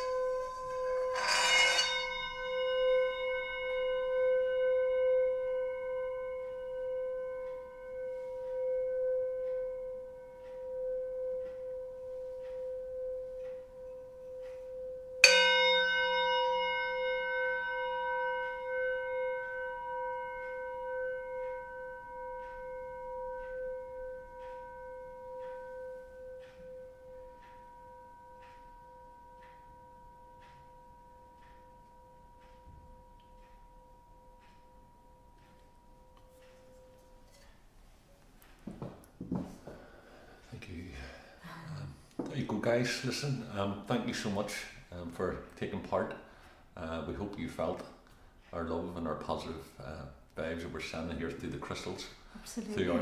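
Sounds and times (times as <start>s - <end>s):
wooden mallet striking bowl: 0.0s - 28.8s
singing bowl ringing: 0.0s - 44.9s, 50.5s - 53.0s.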